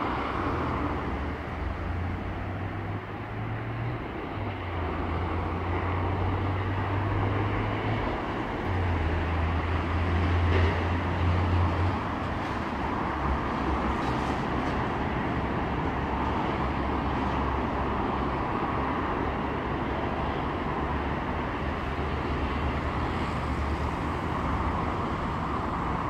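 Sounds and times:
diesel locomotive engine rumbling: 0.0s - 26.0s.

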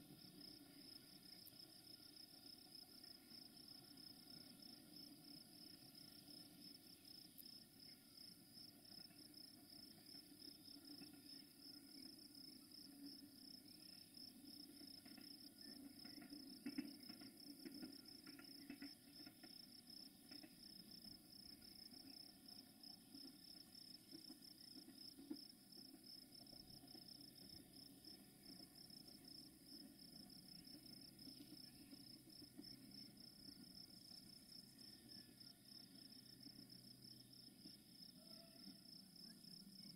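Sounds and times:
crickets chirring: 0.0s - 39.9s.

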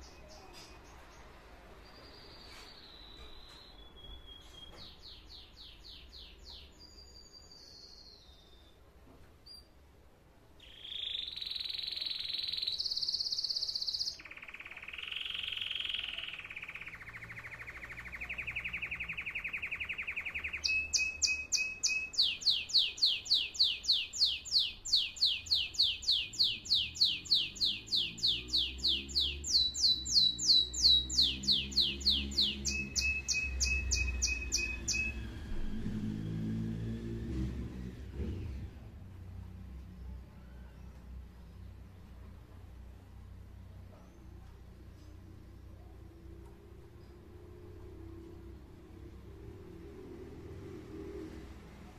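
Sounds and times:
canary singing trills: 10.6s - 36.0s.

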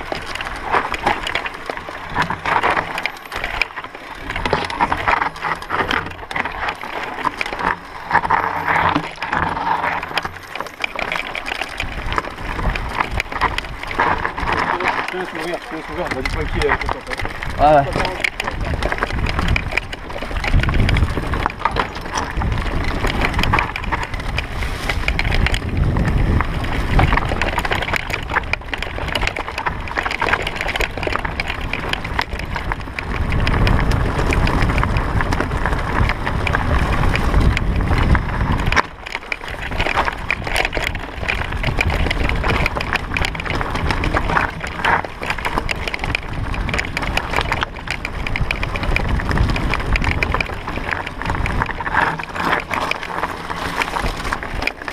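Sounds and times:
bike rattling: 0.0s - 54.9s
tyres crunching over stones: 0.0s - 54.9s
wind on microphone: 11.8s - 54.9s.

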